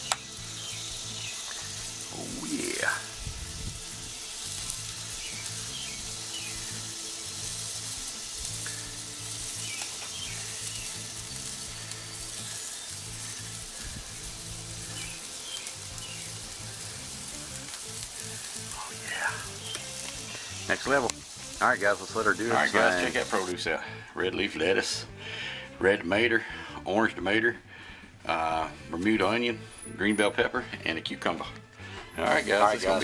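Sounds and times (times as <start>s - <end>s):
steaks sizzling on a grill: 0.0s - 26.8s, 28.2s - 33.0s
soft background music: 0.0s - 33.0s.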